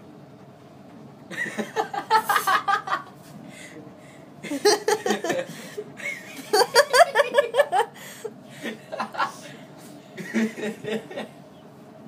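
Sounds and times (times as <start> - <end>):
people laughing: 1.3 - 3.2, 4.4 - 8.0, 8.6 - 9.5, 10.2 - 11.4.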